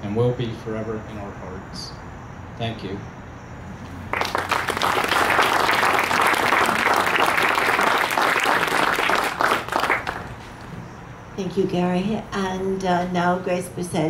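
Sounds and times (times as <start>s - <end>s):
audience applauding: 4.1s - 10.4s.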